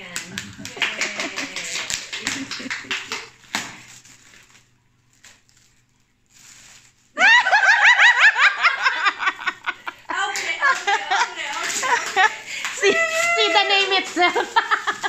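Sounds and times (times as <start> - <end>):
foil wrap crinkling and tearing: 3.2 - 7.7, 10.2 - 15.0
high-pitched laughter: 7.2 - 10.0.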